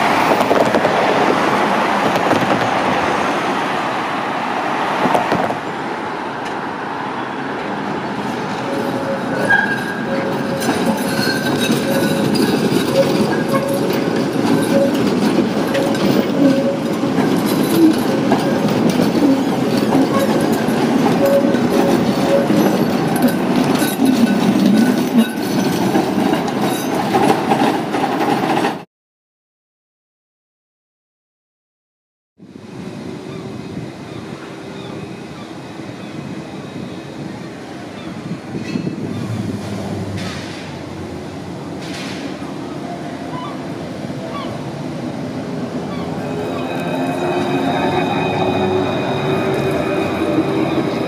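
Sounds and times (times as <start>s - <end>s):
tram wheels rumbling on rail: 0.0s - 28.8s, 32.4s - 51.0s
tram whine: 0.0s - 28.8s, 32.4s - 51.0s
wheels clicking over rail joints: 8.5s - 28.8s.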